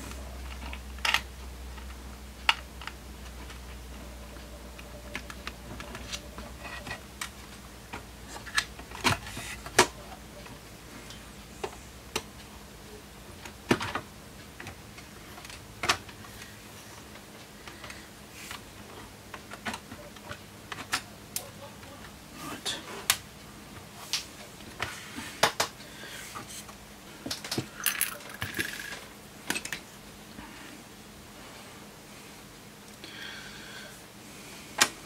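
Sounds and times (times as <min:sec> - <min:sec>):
faint low hum: 0:00.0 - 0:35.0.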